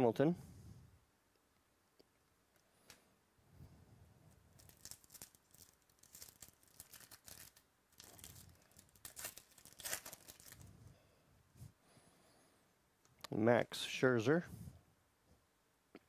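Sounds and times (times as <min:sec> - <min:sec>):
foil wrapper crinkling and tearing: 0:04.5 - 0:10.7.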